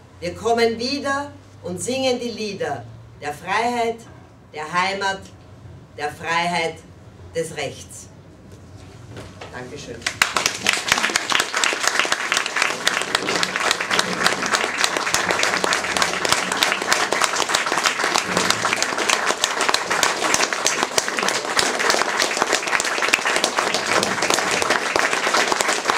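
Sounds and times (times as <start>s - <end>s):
audience applauding: 10.0s - 25.9s.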